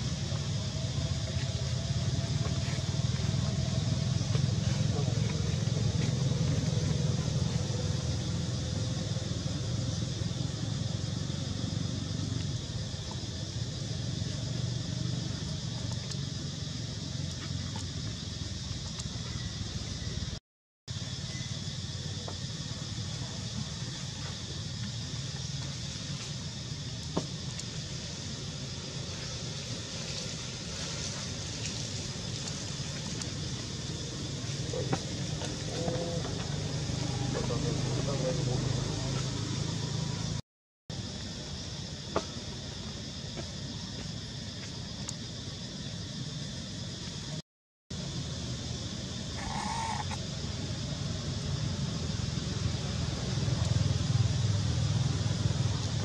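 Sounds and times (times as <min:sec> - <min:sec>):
faint hiss: 0:20.9 - 0:35.3.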